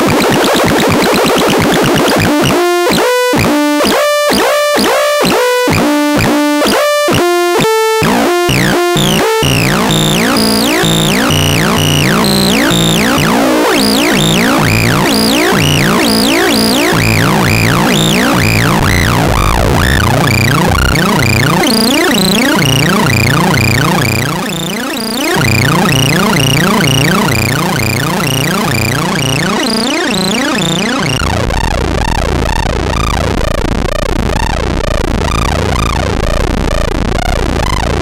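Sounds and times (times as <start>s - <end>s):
synthesizer notes and sweeps: 8.0s - 31.4s.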